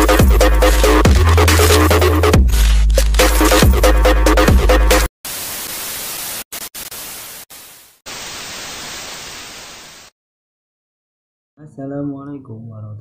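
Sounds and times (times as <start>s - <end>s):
electronic music with deep bass: 0.0s - 5.1s
tv static hiss: 5.2s - 10.1s.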